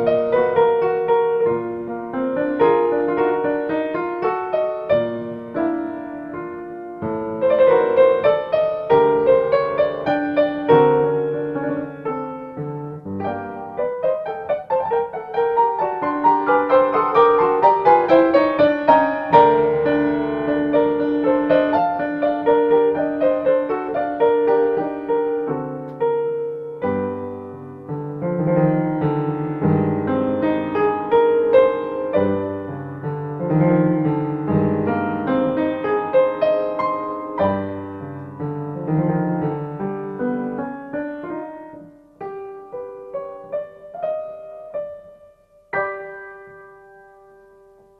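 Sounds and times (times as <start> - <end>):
solo classical piano music: 0.0 - 47.9.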